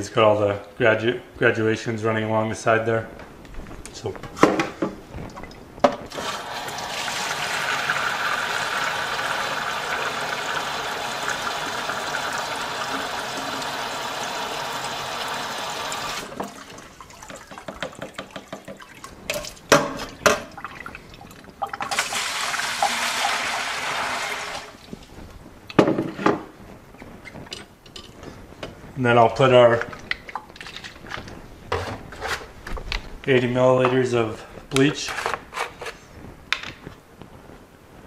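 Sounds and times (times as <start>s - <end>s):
hose water filling plastic beaker: 6.1s - 17.8s, 21.6s - 24.8s.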